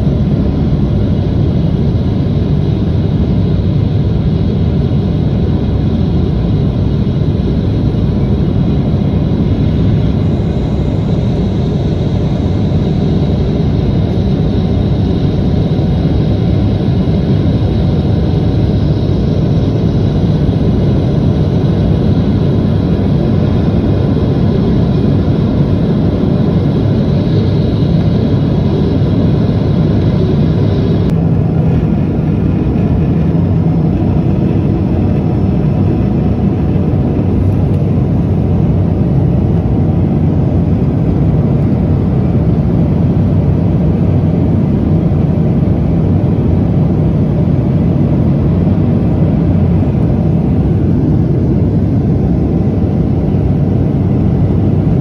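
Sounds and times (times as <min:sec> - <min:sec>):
jet engine cabin rumble: 0:00.0 - 0:55.0.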